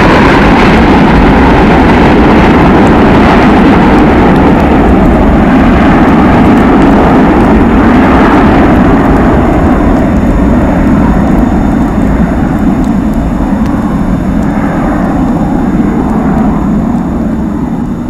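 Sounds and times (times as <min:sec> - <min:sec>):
jet airliner climbing: 0:00.0 - 0:18.0.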